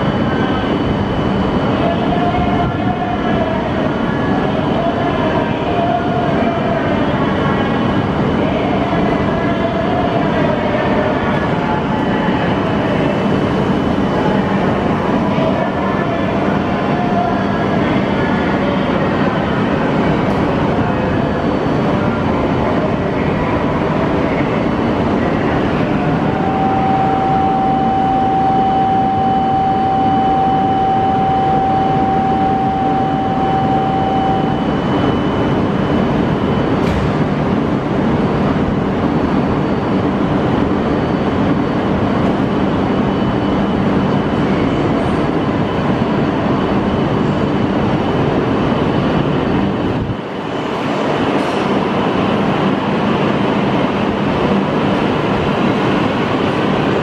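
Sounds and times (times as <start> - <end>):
train and station hum: 0.0 - 57.0
electronic tone: 26.2 - 35.6.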